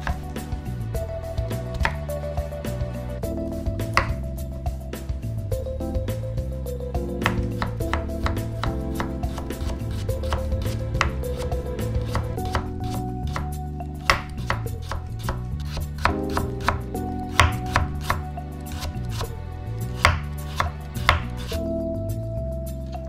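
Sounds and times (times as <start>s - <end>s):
knife chopping carrot on board: 0.0s - 0.3s, 1.7s - 2.0s, 3.8s - 4.3s, 7.2s - 21.6s.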